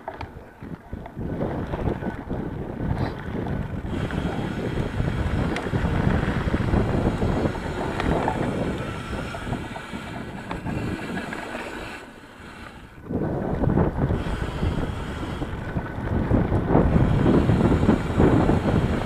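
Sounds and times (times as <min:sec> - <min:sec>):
wind buffeting microphone: 0:00.0 - 0:19.0
bike clicks and rattles: 0:02.9 - 0:19.0.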